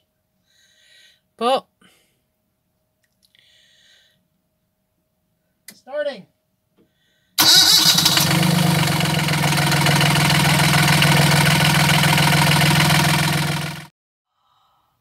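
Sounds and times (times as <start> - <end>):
diesel engine starting and idling: 7.4 - 13.9.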